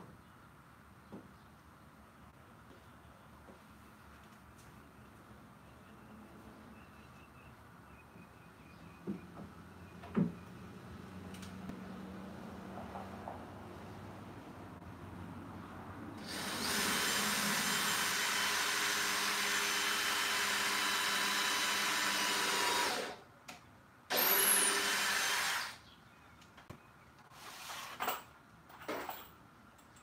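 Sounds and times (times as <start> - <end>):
power drill running: 16.2 - 23.2, 24.1 - 25.8.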